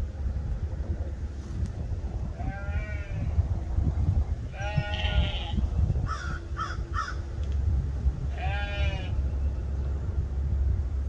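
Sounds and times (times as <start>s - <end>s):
low rumble: 0.0s - 11.0s
lamb bleating: 2.4s - 3.3s, 4.5s - 5.6s, 8.3s - 9.1s.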